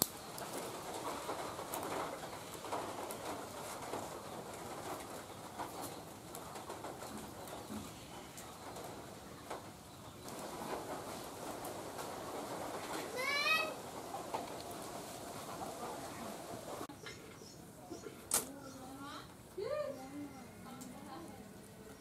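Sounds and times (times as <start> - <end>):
bamboo splints clicking and rustling: 0.0 - 8.5, 18.2 - 18.6.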